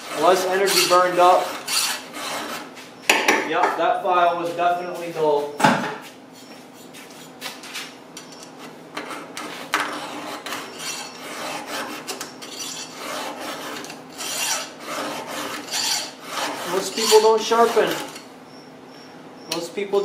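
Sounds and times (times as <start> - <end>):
file rasping on saw chain: 0.0 - 2.7, 9.0 - 18.3.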